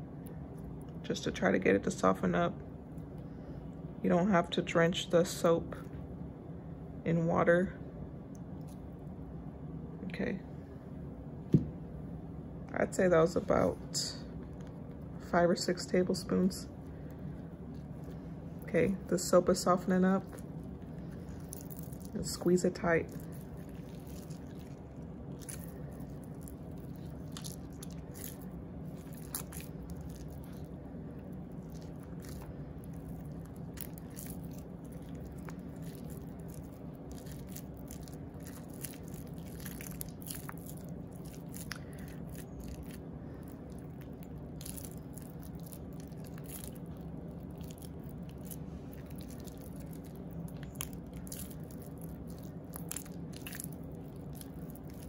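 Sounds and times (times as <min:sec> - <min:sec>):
steady low hum: 0:00.0 - 0:55.0
soap shavings crunching: 0:16.9 - 0:55.0.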